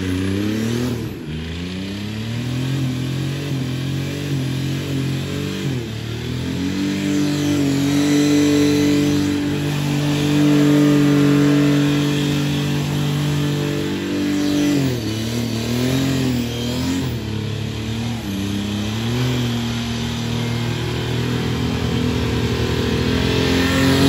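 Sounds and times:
diesel engine revving: 0.0s - 24.0s.

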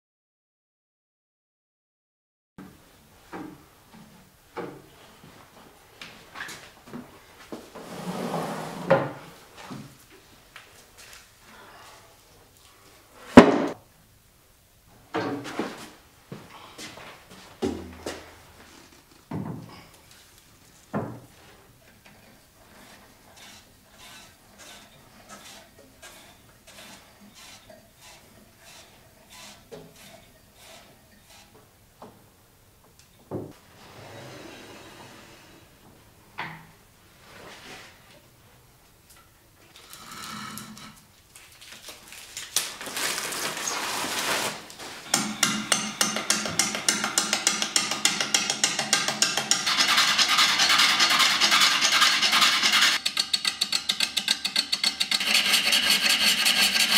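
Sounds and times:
plastic wrapping rustling: 41.2s - 45.1s
sharp metal knocks: 45.1s - 49.7s, 53.0s - 55.2s.

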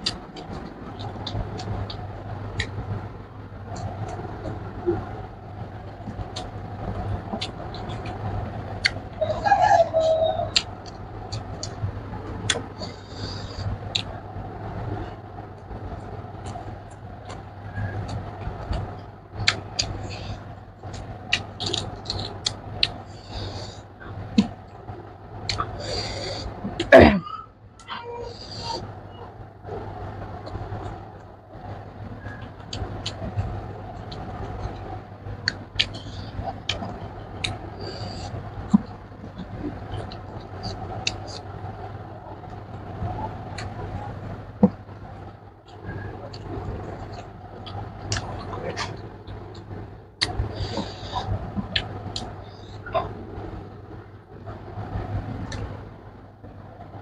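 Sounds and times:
steady low hum: 0.0s - 57.0s
chewing and lip-smacking: 6.1s - 9.0s, 12.4s - 14.1s, 16.4s - 24.6s, 30.4s - 41.5s, 45.7s - 53.5s
chewing mouth clicks and smacks: 19.4s - 20.2s, 20.8s - 23.0s.

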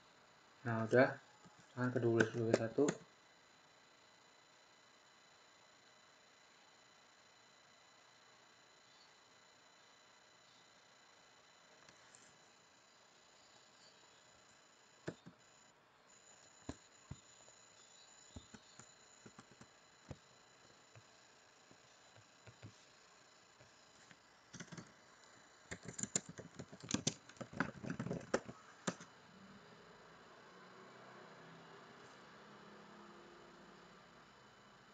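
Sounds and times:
keyboard typing: 1.8s - 3.1s, 15.0s - 15.4s, 18.2s - 23.0s, 23.6s - 29.1s
computer mouse clicks: 2.0s - 3.0s, 15.0s - 15.4s, 18.3s - 20.3s, 22.1s - 22.9s, 23.6s - 25.0s, 25.7s - 29.1s.

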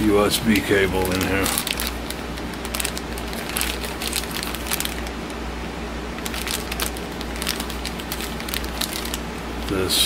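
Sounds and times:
plastic bag crinkling: 0.0s - 5.3s, 6.1s - 9.7s.

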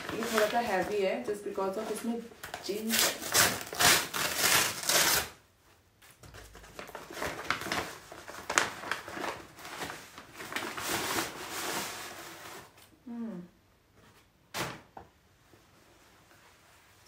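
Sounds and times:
plastic bag stretching: 0.0s - 1.0s
plastic mailer bag crinkling: 0.0s - 1.0s, 6.4s - 11.9s.

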